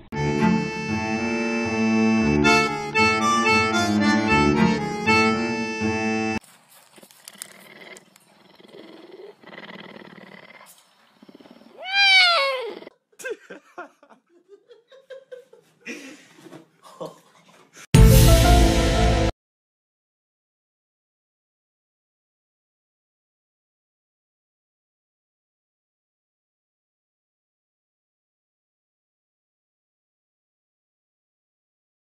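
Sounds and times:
background music with held notes: 0.2 - 6.4, 18.0 - 19.3
cougar call: 7.3 - 12.9.

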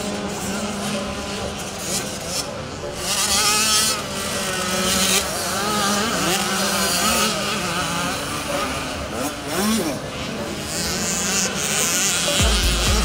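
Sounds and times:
motocross motorcycle engines revving: 0.0 - 13.0.

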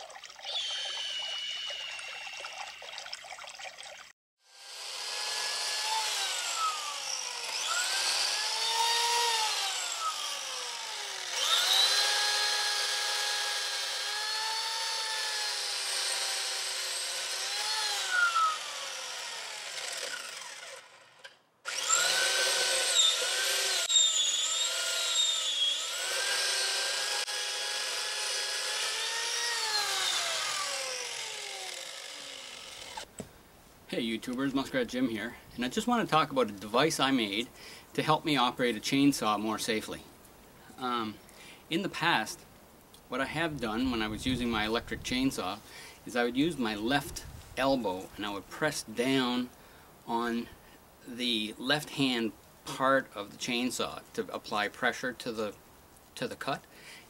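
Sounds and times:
electric chainsaw cutting branches: 0.5 - 2.3, 4.4 - 33.2.

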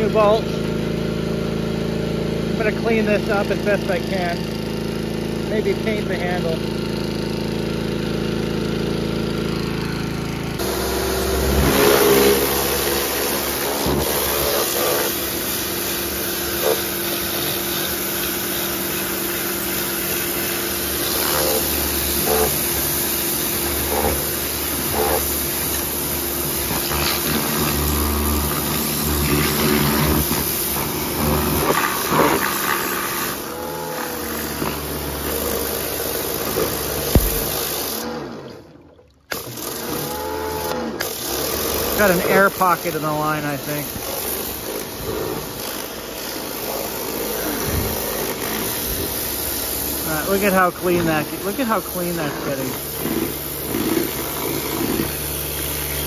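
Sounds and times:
pressure washer motor humming: 0.0 - 56.0
water spray hissing on metal: 10.6 - 33.5, 41.7 - 56.0.

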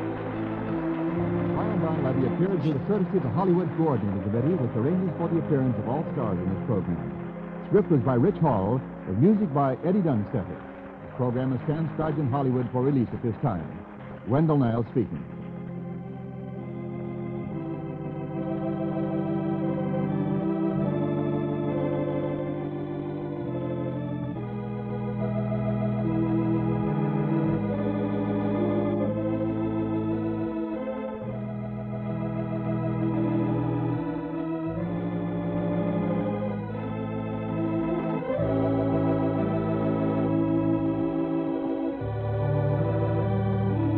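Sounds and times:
organ playing held chords: 0.0 - 43.9.

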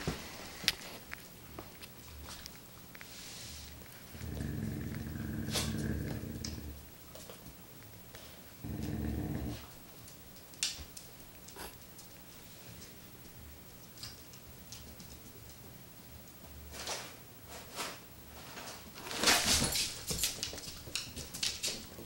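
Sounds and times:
dog play-growling: 3.8 - 7.3, 8.6 - 9.8.

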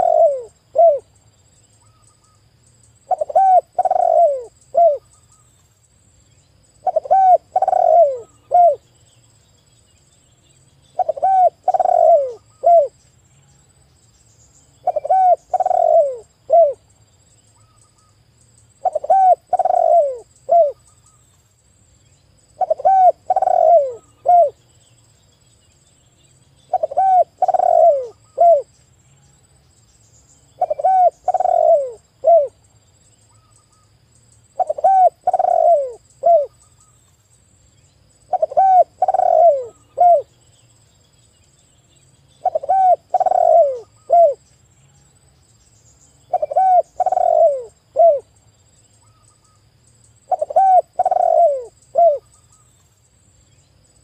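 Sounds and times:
dove cooing: 0.0 - 1.1, 3.1 - 5.1, 6.8 - 8.9, 11.0 - 13.0, 14.8 - 16.8, 18.8 - 20.8, 22.6 - 24.6, 26.7 - 28.7, 30.6 - 32.6, 34.6 - 36.6, 38.3 - 40.3, 42.4 - 44.4, 46.3 - 48.3, 50.3 - 52.3.

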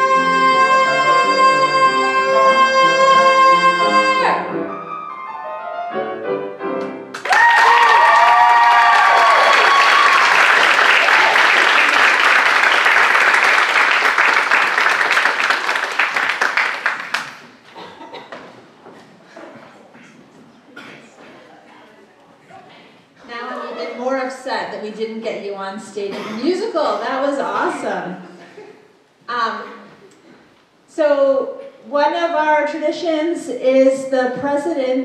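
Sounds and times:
person singing a long note: 0.0 - 4.5
grand piano: 0.0 - 7.2
audience applause and cheers: 7.1 - 17.4.

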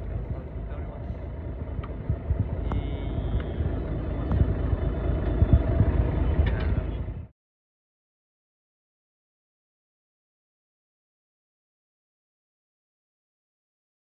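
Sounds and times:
sea: 0.0 - 7.2
boat engine rumble: 0.0 - 7.3
wind buffeting microphone: 0.0 - 7.3.

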